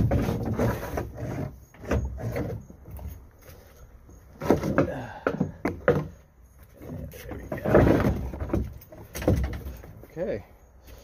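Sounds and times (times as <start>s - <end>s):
cable scraping against hull: 0.0s - 4.8s.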